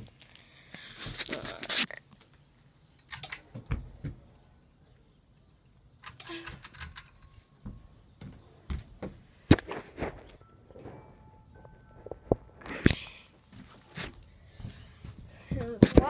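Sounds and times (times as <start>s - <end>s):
sharp clicks and rattles: 0.1s - 4.9s, 5.6s - 7.6s.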